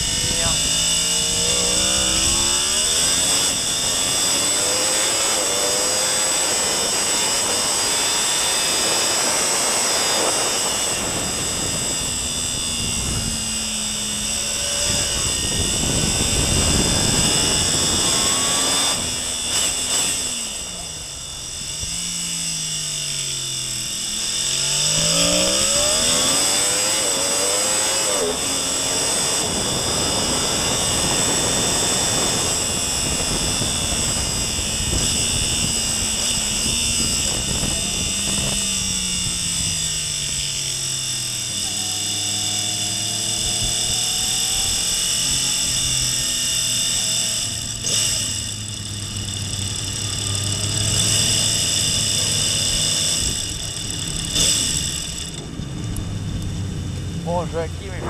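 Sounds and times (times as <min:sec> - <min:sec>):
rushing wind noise: 0:00.0 - 0:22.0, 0:24.7 - 0:40.0
motorcycle engine at high revs: 0:00.0 - 0:58.0.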